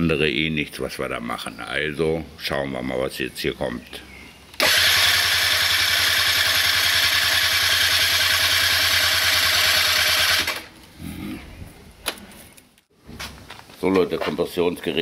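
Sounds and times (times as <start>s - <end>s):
scooter engine cranking over: 4.6s - 10.8s.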